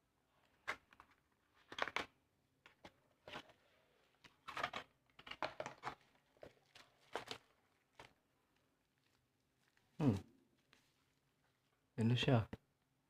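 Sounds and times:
cardboard and plastic rustling: 0:02.7 - 0:11.7.

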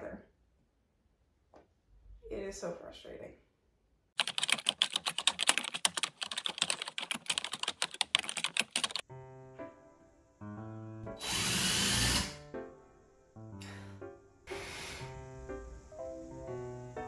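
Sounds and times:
soft music: 0:09.0 - 0:17.0.

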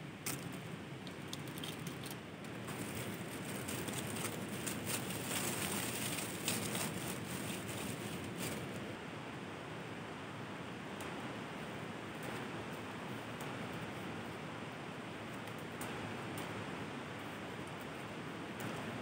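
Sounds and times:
wood fire crackling: 0:00.1 - 0:08.9.

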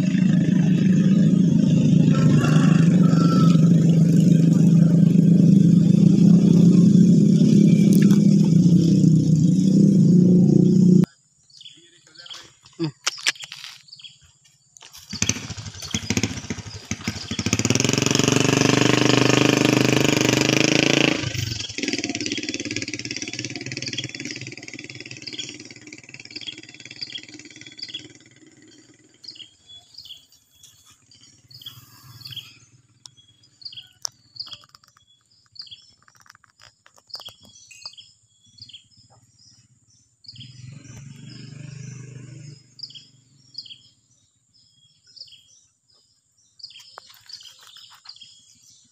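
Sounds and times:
engine running loud: 0:00.0 - 0:11.1, 0:15.1 - 0:33.8, 0:39.0 - 0:44.1
low engine hum: 0:00.0 - 0:11.1
birds chirping: 0:00.0 - 0:19.0, 0:21.2 - 0:48.9.

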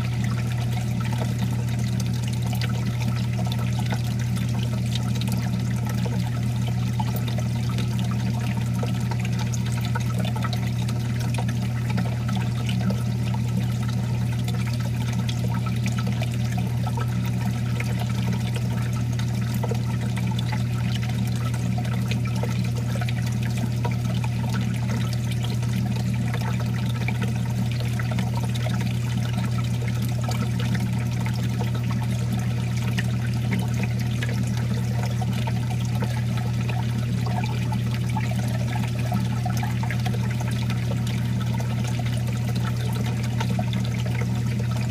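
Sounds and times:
water splashing and trickling: 0:00.0 - 0:44.9.

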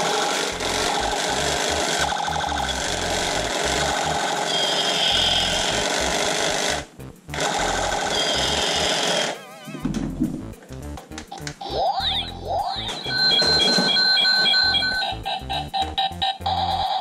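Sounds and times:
toy gun rapid rattling: 0:00.0 - 0:05.0
high electronic tone: 0:00.6 - 0:06.1, 0:07.4 - 0:10.0, 0:11.6 - 0:17.0.

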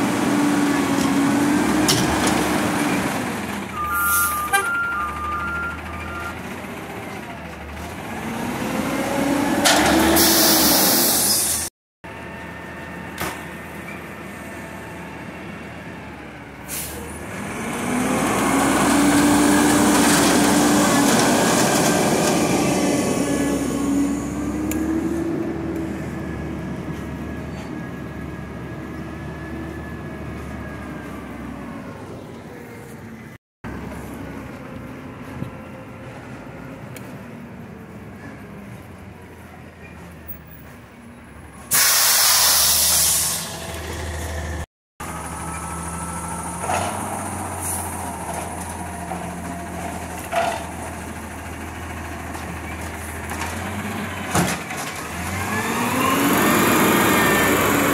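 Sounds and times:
truck engine revving: 0:00.0 - 0:11.7, 0:17.0 - 0:27.4, 0:42.5 - 0:57.9
air brake hiss: 0:10.1 - 0:11.7, 0:16.6 - 0:17.1, 0:41.7 - 0:43.6.

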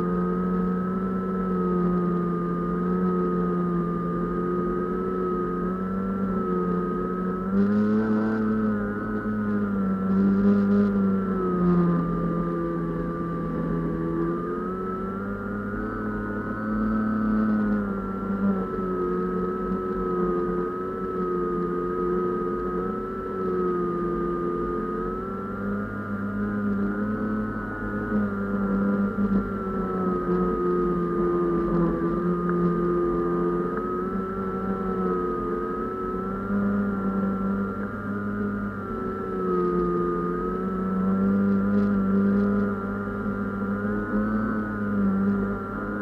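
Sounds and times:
drone motor buzzing: 0:00.0 - 0:46.0.

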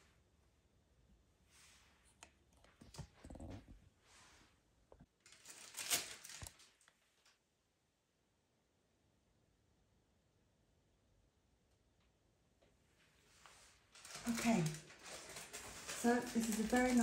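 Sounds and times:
soft rustles: 0:13.0 - 0:17.0.

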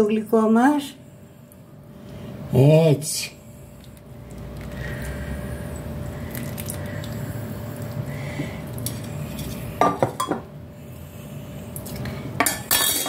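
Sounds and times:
low steady hum: 0:00.0 - 0:13.0
glaze pouring: 0:03.8 - 0:08.0.

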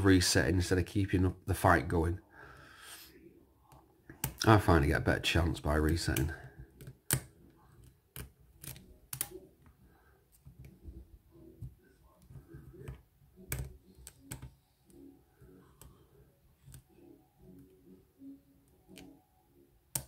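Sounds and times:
lock pick clicking and scratching: 0:05.9 - 0:09.5, 0:12.2 - 0:15.9.

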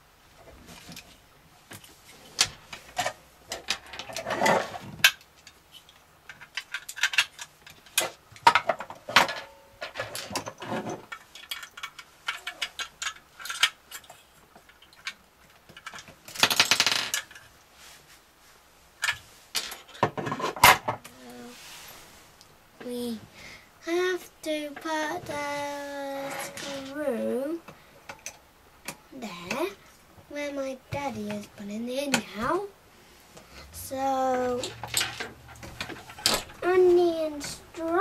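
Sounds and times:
small parts clicking on wooden table: 0:10.1 - 0:17.4.

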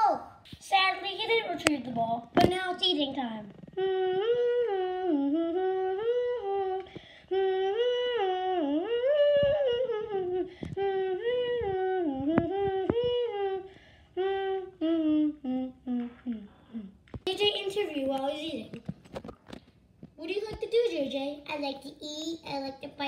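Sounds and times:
woman humming: 0:03.5 - 0:17.1.

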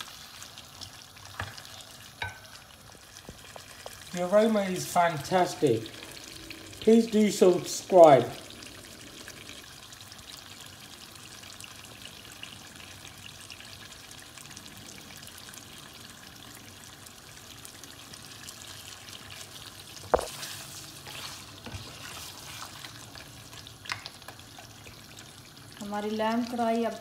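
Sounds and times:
meat sizzling in pot: 0:00.0 - 0:27.0
spatula stirring and scraping: 0:18.6 - 0:25.4.

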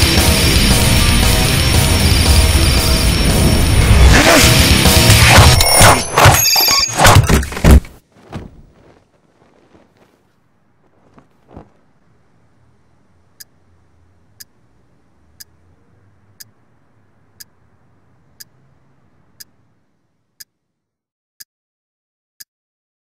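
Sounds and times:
blanket dropping onto bed: 0:07.6 - 0:10.2
low room hum: 0:10.4 - 0:20.4
clock ticking: 0:14.3 - 0:14.6, 0:17.4 - 0:17.6.

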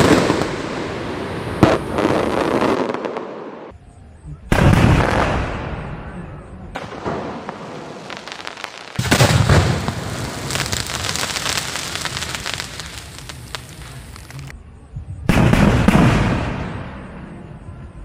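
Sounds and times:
firework crackling: 0:00.0 - 0:03.4, 0:06.8 - 0:14.5.

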